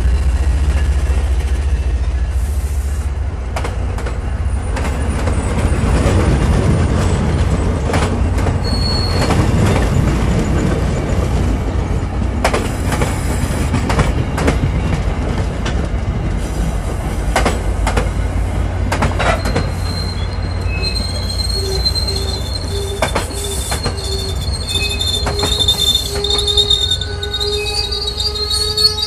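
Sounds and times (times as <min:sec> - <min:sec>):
train low rumble: 0:00.0 - 0:29.0
wheels clicking over rail joints: 0:03.5 - 0:18.2, 0:18.8 - 0:26.8
high brake squeal: 0:08.6 - 0:10.6, 0:19.2 - 0:29.0.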